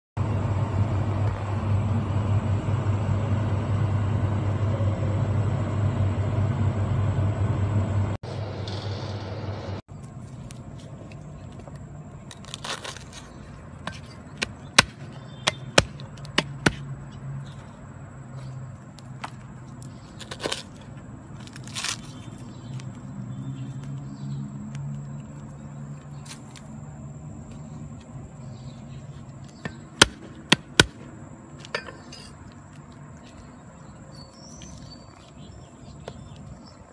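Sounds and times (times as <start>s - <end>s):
steady low hum: 0.2s - 36.9s
cleaver chopping on wooden board: 13.8s - 16.8s, 29.6s - 31.0s.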